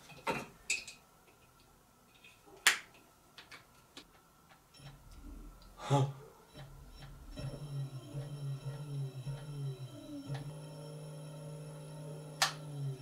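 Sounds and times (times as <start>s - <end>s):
electric motor humming: 7.3s - 13.0s.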